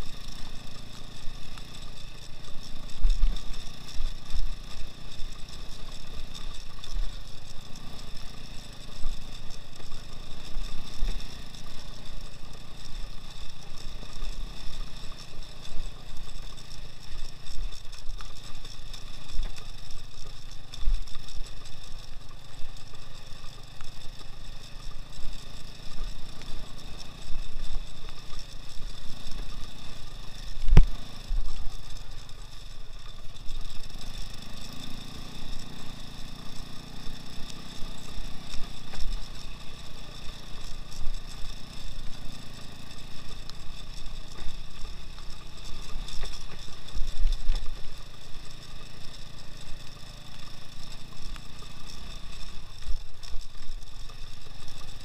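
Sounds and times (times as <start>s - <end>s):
low thumps over rough ground: 0.0s - 55.0s
off-road motorcycle engine: 0.0s - 55.0s.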